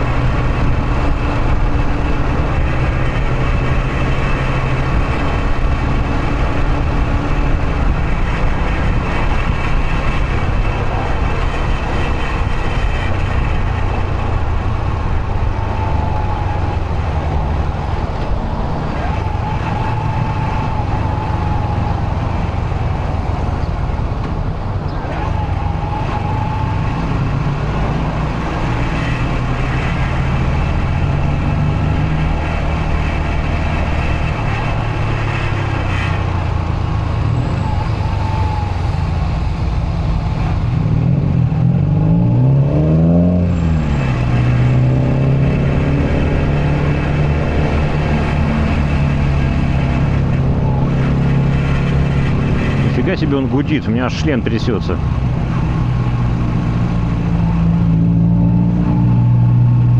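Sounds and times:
road and traffic noise: 0.0 - 59.9.

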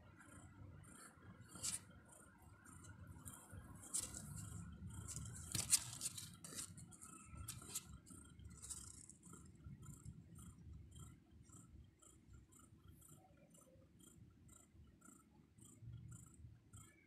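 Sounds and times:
kittens suckling: 2.8 - 11.2.

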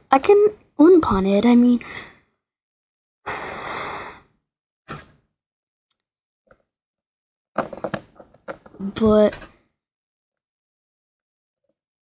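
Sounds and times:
short breath: 1.8 - 2.4, 3.3 - 4.4.

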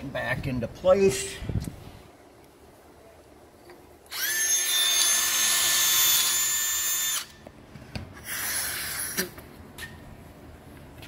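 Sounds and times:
cordless drill whining: 4.1 - 7.4.

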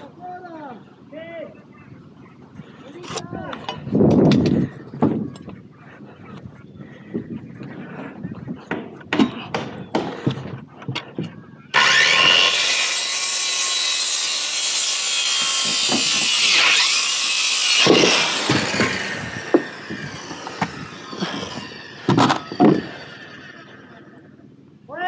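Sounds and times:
circular saw cutting wood: 11.7 - 24.0.

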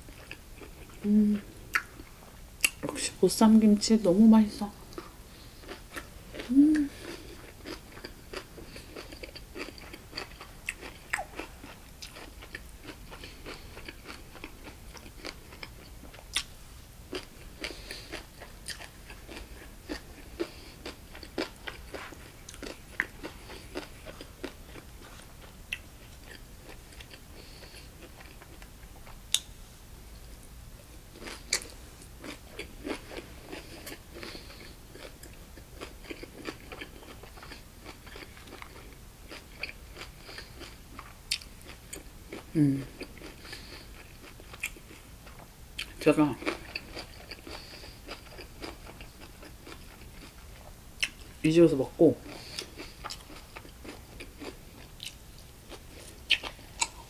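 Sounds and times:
crunchy chewing: 4.9 - 16.5, 17.1 - 29.5, 31.1 - 51.4, 52.2 - 57.0.

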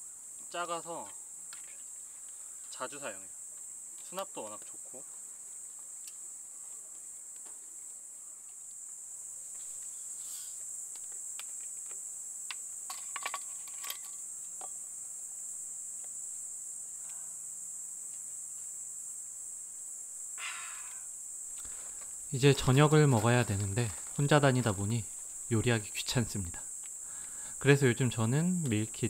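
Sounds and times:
crickets chirring: 0.0 - 29.0.

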